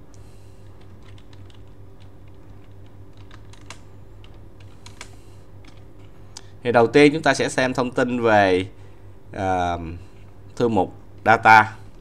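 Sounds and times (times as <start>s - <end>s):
steady low hum: 0.0s - 12.0s
keyboard keys clicking: 0.7s - 6.1s.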